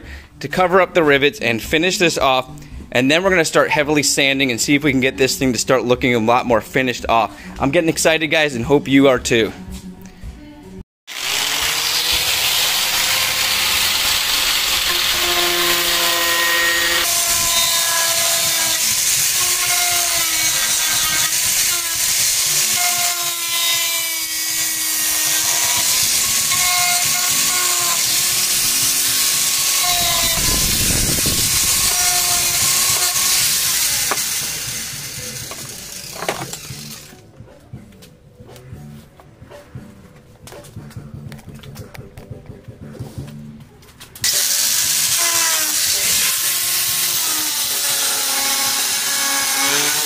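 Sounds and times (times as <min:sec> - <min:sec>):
power grinder whining: 0:11.1 - 0:37.2, 0:44.2 - 0:50.0.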